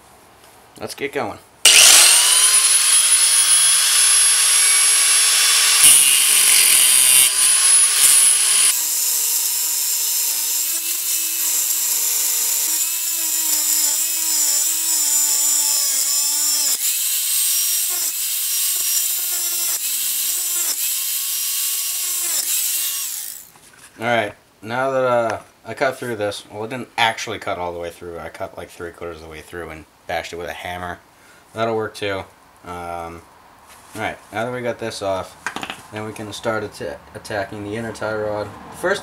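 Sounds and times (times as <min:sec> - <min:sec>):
angle grinder cutting steel: 0:01.7 - 0:23.5.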